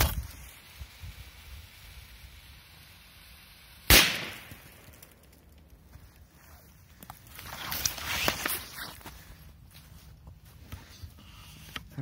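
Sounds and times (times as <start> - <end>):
firecracker bang: 3.9 - 4.9.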